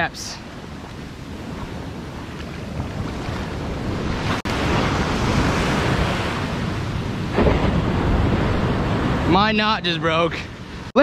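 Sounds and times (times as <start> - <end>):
surf breaking on beach: 0.0 - 11.0
wind on microphone: 0.0 - 11.0.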